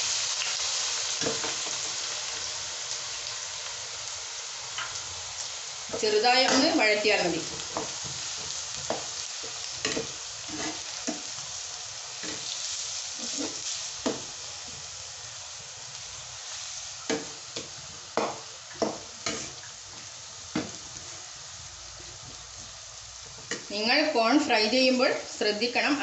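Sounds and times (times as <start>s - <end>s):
onions sizzling in hot oil: 0.0s - 26.0s
metal spoon scraping pan: 9.9s - 11.2s.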